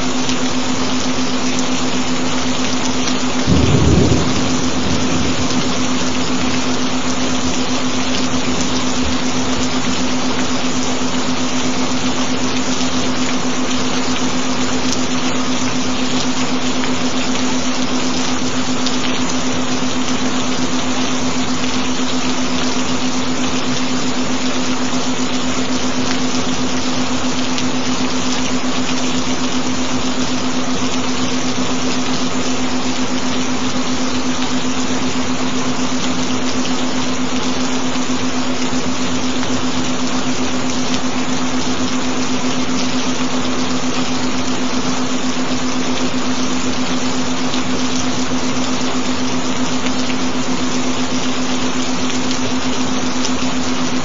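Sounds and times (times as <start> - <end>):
steady rain: 0.0 - 54.0
low binaural beat tone: 3.4 - 9.9.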